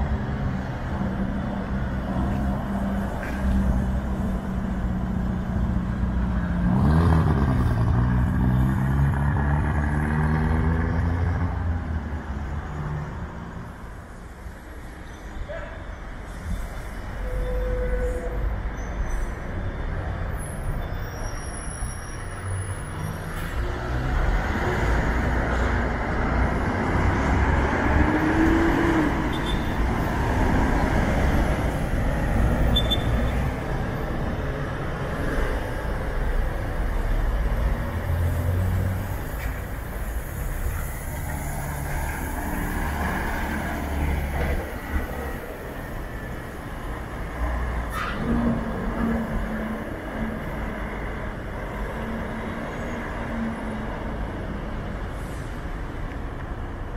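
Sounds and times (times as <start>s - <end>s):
bus diesel rumble: 0.0s - 9.4s, 10.6s - 56.9s
road noise: 0.0s - 56.9s.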